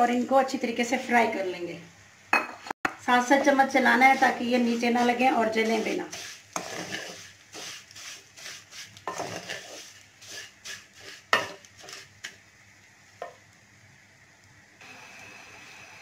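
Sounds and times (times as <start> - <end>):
vermicelli frying: 0.0 - 16.0
spatula scraping metal pan: 3.4 - 12.4.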